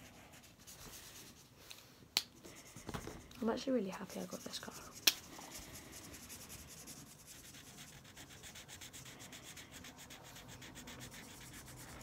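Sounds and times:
marker scratching on paper: 2.5s - 12.0s.

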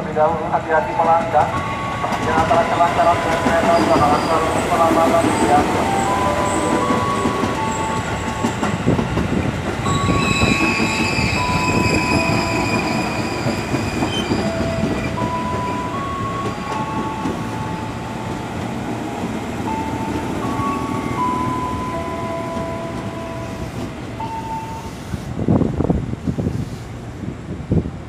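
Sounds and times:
train wheels rumbling on rails: 0.0s - 28.0s
high squeal of train wheels: 1.9s - 18.0s, 19.7s - 25.4s.

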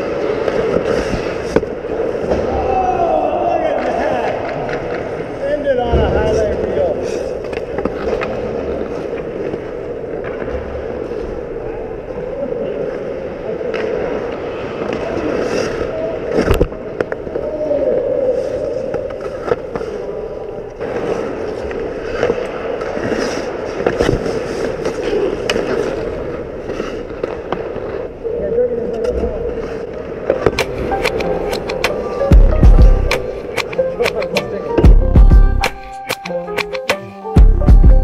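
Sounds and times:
hockey sticks and puck clacking: 0.1s - 2.6s, 7.4s - 10.7s, 18.9s - 20.0s, 21.7s - 28.1s, 30.2s - 32.3s, 33.1s - 34.5s
skate blades scraping ice: 20.8s - 28.1s.

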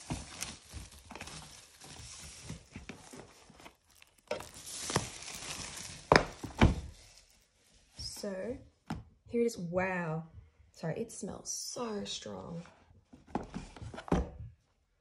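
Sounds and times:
plastic wrap crinkling: 0.0s - 7.5s.

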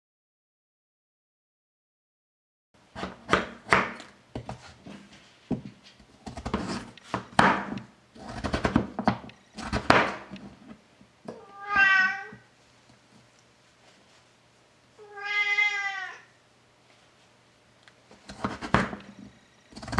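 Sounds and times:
cat meowing: 11.4s - 12.5s, 15.0s - 16.4s.

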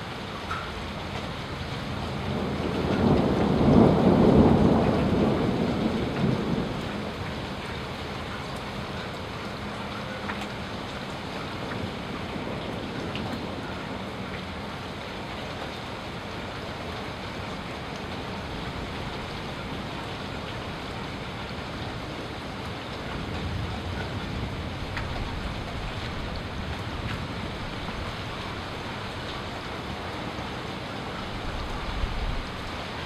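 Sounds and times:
steady rain hiss: 0.0s - 33.0s
raindrop ticks: 0.3s - 1.4s, 2.1s - 14.6s, 16.9s - 29.7s
low thunder rumble: 2.1s - 7.6s.

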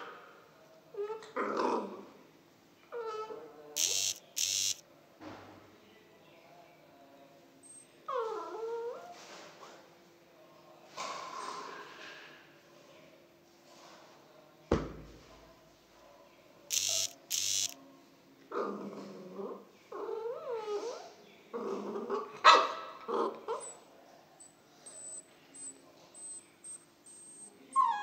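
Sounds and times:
short scratchy noises: 3.8s - 4.8s, 16.7s - 17.8s
puppy whining and yapping: 27.7s - 28.0s.

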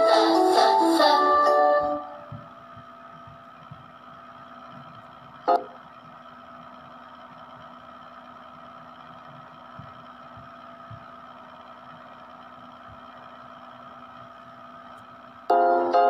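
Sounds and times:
faint steady hum: 0.0s - 16.0s
faint low knocks: 2.2s - 4.0s, 9.2s - 11.1s.

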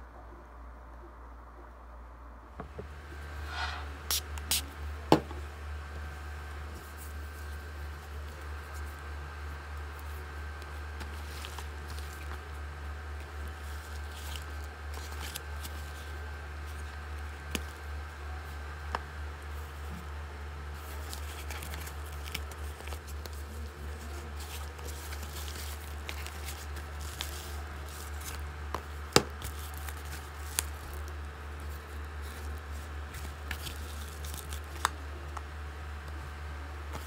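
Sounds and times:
steady low hum: 0.0s - 37.0s
paper mailer rustling: 20.7s - 34.9s.

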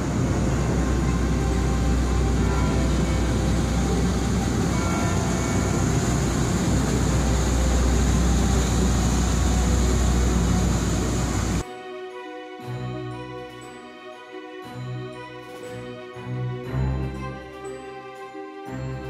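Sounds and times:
barge diesel engine rumbling: 0.0s - 11.6s
propeller wash: 0.0s - 11.6s.

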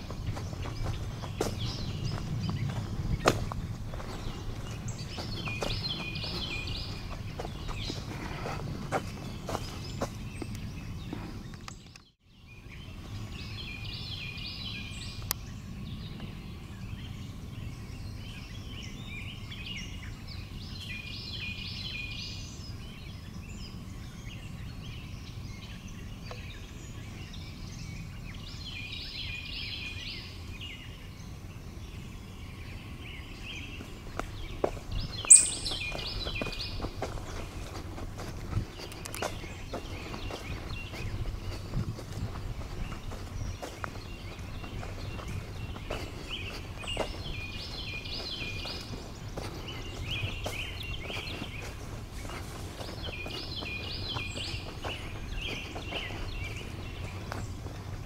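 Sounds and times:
low outdoor background: 0.0s - 58.0s
songbird trilling: 26.0s - 37.5s, 38.8s - 57.5s.

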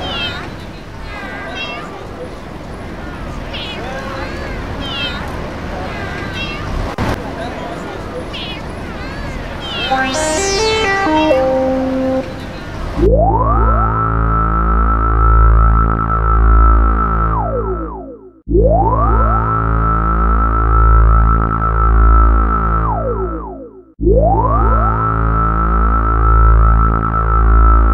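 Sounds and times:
synthesizer music loop: 9.9s - 12.6s.

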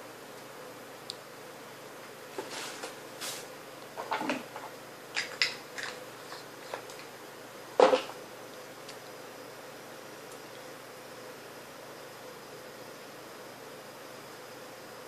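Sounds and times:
soft rustles: 2.3s - 3.5s.

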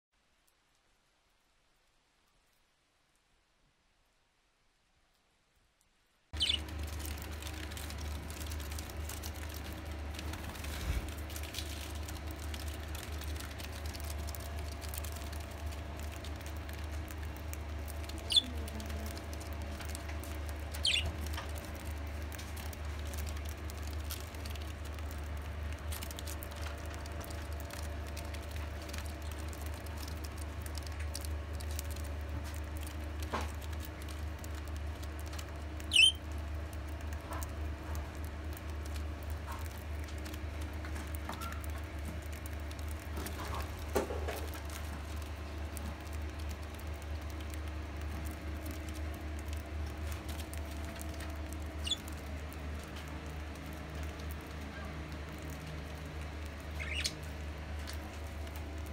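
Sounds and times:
budgie chirps: 6.4s - 6.7s, 18.2s - 18.6s, 20.8s - 21.2s, 35.9s - 36.2s, 56.8s - 57.2s
birds pecking seed: 6.4s - 58.9s.

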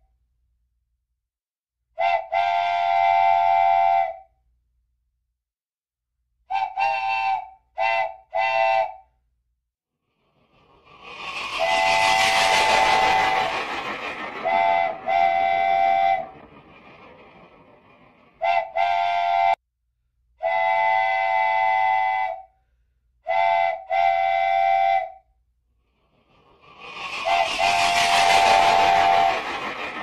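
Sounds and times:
rushing train-running noise: 10.2s - 19.6s, 25.9s - 30.0s.

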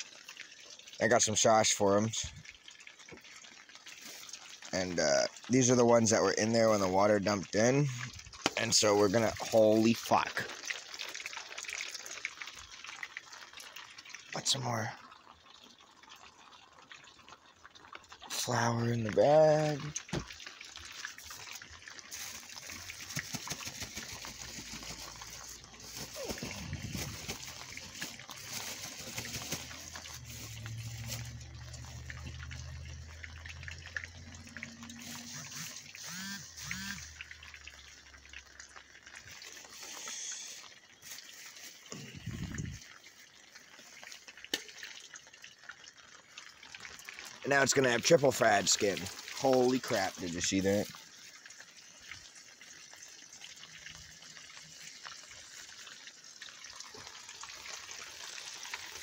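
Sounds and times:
oil popping: 0.0s - 59.0s
chicken sizzling in oil: 19.3s - 37.2s, 45.1s - 59.0s
plastic bag crinkling: 22.1s - 31.4s, 41.0s - 42.3s.

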